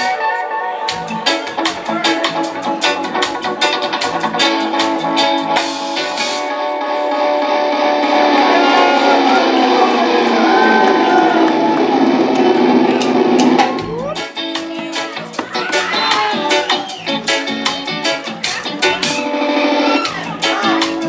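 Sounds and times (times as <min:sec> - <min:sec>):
electric guitar: 0:00.0 - 0:21.0
drums and cymbals: 0:00.9 - 0:06.5, 0:12.3 - 0:21.0
sustained layered tones: 0:07.4 - 0:13.7.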